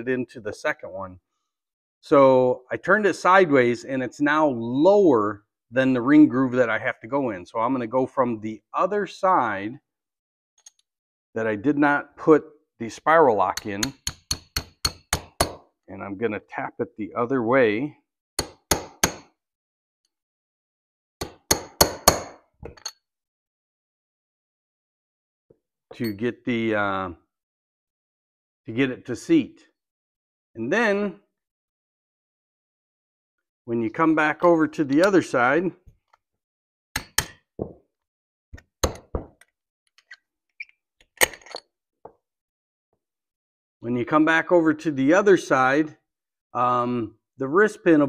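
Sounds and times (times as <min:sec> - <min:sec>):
hammer tapping metal punch: 0:13.6 - 0:15.6.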